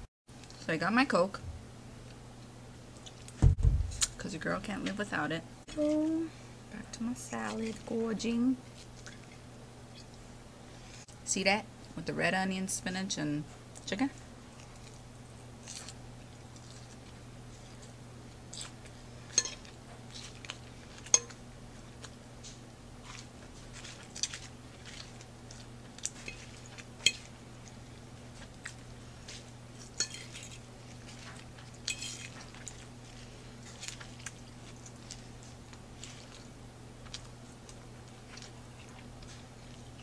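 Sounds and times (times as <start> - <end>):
steady low hum: 0.0 - 40.0
crunchy chewing: 8.7 - 10.2, 14.5 - 40.0
fork clinking on ceramic plate: 19.3 - 19.7, 21.1 - 21.4.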